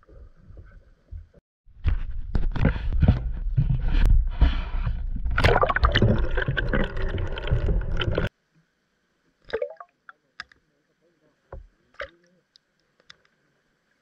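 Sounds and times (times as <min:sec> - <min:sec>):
muffled water sloshing and gurgling: 0:02.5 - 0:08.3.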